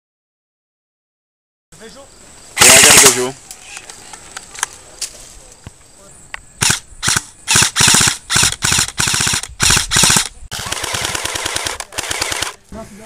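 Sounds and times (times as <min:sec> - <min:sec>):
airsoft rifle full auto bursts: 0:02.6 - 0:03.3, 0:06.6 - 0:12.6.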